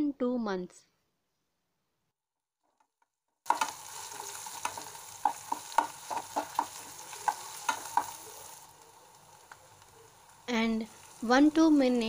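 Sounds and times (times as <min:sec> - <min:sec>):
metal spoon scraping a pan: 0:03.5 - 0:08.6
vegetables sizzling in oil: 0:03.5 - 0:12.0.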